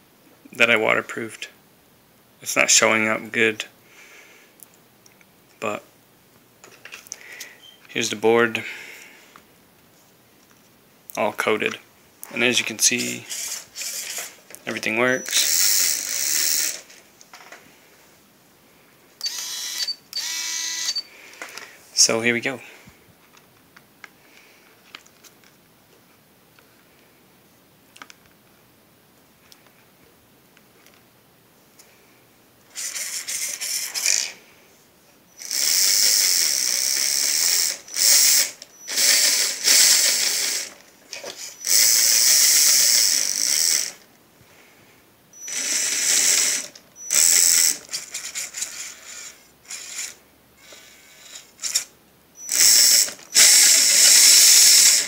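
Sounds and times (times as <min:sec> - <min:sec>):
electric motor and gears whirring: 0:12.8 - 0:16.9, 0:19.2 - 0:21.1, 0:32.7 - 0:34.4, 0:35.4 - 0:44.0, 0:45.4 - 0:55.0.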